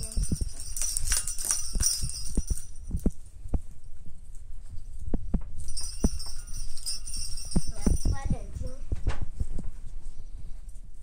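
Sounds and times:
light metallic jingling: 0.0 - 4.0, 5.6 - 8.9.

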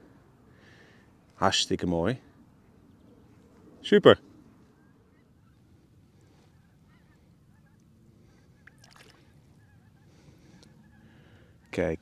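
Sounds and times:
distant geese honking: 4.6 - 11.8.

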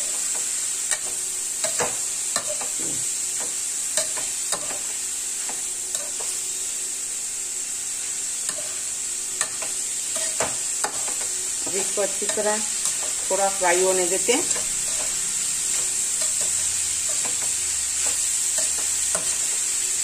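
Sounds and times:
vegetables sizzling in hot oil: 0.0 - 20.0
spatula scraping and clinking on pan: 14.4 - 19.8.

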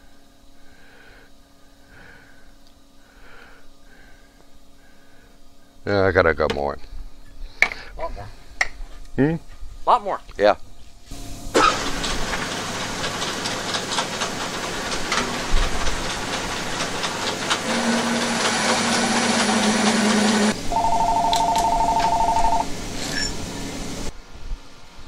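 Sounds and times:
metal lathe cutting: 11.6 - 20.6.

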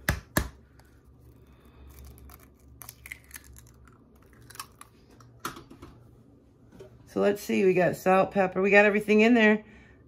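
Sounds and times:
eggshell clicks and crackles: 0.1 - 5.8.

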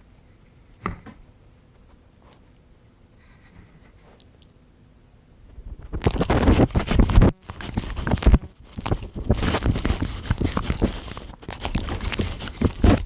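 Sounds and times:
dog licking microphone: 6.0 - 13.0.

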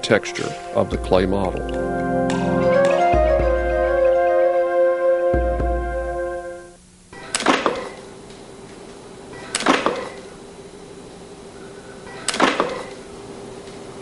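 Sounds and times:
steady low hum: 0.0 - 4.2, 7.9 - 14.0.

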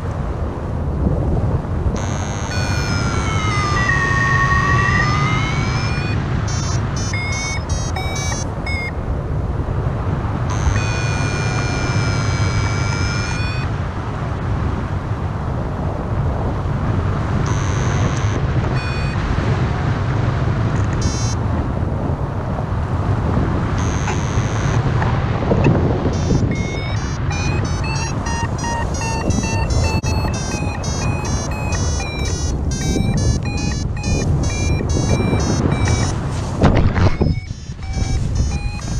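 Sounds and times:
wind rush on microphone: 0.0 - 38.9
variometer beeps and tones: 2.0 - 9.0, 10.4 - 13.8, 17.4 - 19.4, 20.7 - 21.4, 23.7 - 38.9.

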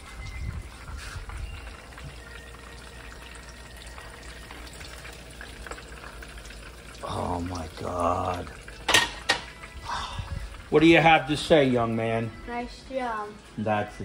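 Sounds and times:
fish frying in hot oil: 0.0 - 13.2.

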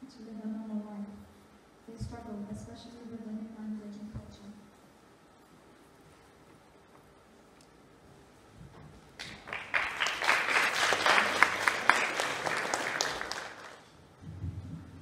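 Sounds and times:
audience applauding: 9.2 - 13.9.

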